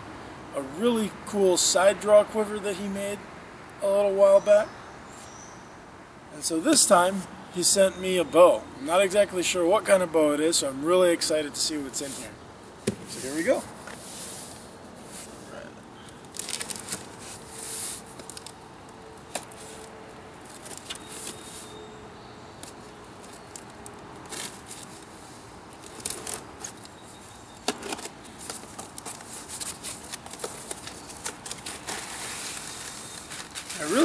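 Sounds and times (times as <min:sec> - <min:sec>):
packing tape tearing: 0:16.2 - 0:18.6, 0:27.7 - 0:34.0
cardboard flaps scraping: 0:27.8 - 0:34.0.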